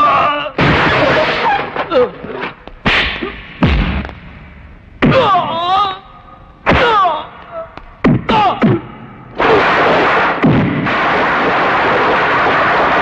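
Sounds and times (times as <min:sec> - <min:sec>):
punch and kick hits: 0:02.8 - 0:04.2, 0:08.0 - 0:11.0.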